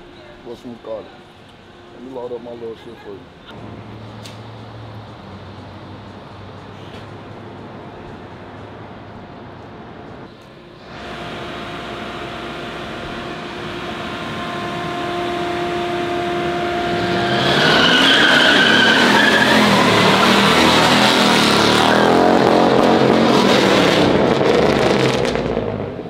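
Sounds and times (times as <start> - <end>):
car engine revving: 8.6 - 26.0
tires squealing: 14.2 - 25.3.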